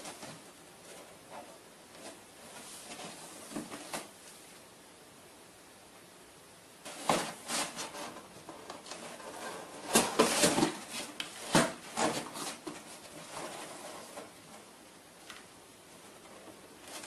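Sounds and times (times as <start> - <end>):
cardboard box scraping and rustling: 6.9 - 14.4.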